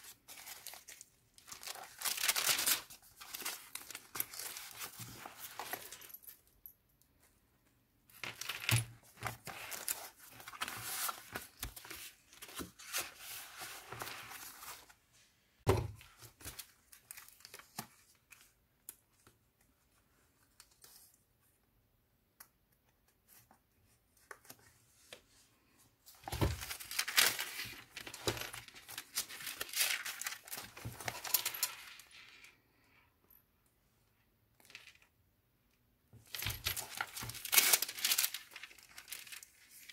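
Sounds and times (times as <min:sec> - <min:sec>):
paper pages rustling: 0:00.0 - 0:06.2, 0:08.1 - 0:15.0, 0:16.0 - 0:18.5, 0:26.1 - 0:32.1, 0:36.2 - 0:39.9.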